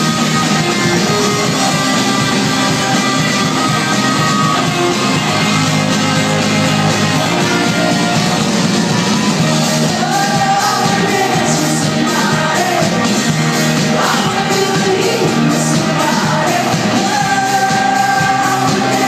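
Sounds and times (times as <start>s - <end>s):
live rock band playing: 0.0s - 19.0s
person singing: 9.6s - 19.0s.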